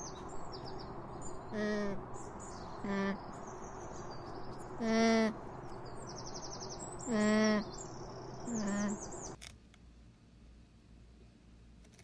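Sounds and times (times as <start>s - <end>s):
small birds twittering: 0.0s - 9.4s
alpaca humming: 1.4s - 2.1s, 2.8s - 3.4s, 4.1s - 5.6s, 7.0s - 7.8s, 8.4s - 9.4s.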